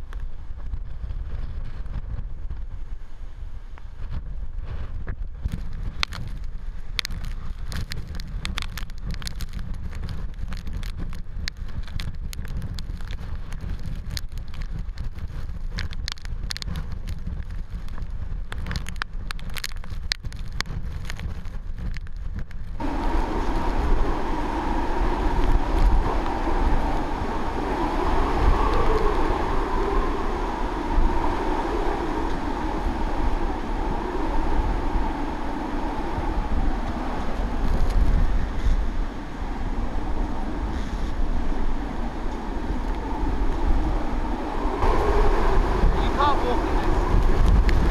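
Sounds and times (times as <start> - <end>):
wind buffeting microphone: 0.0 - 47.9
driving rain: 5.4 - 47.9
wavering high-pitched wind: 22.8 - 47.9.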